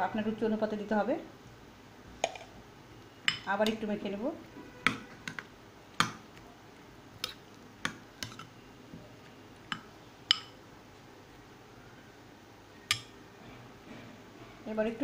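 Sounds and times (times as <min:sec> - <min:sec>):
spoon stirring thick mash: 0:03.4 - 0:10.6
spoon clinking against bowl: 0:09.7 - 0:10.6.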